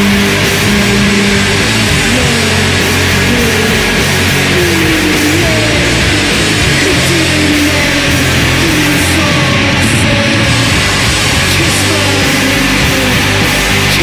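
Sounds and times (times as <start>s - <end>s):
heavy rock music with distorted guitar: 0.0s - 14.0s.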